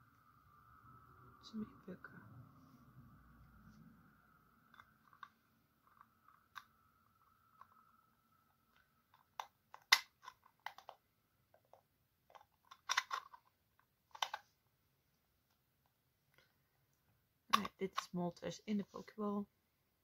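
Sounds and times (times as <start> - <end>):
plastic clicks and crackles: 8.7 - 14.5, 17.5 - 18.1.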